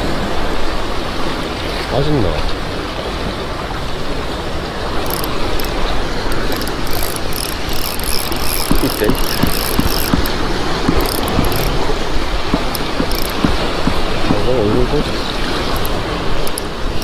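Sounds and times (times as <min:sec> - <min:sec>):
sea water rushing: 0:00.0 - 0:17.0
spinning reel gears whirring: 0:04.9 - 0:17.0
fishing rod knocks: 0:05.0 - 0:11.8, 0:12.4 - 0:14.9, 0:15.6 - 0:17.0.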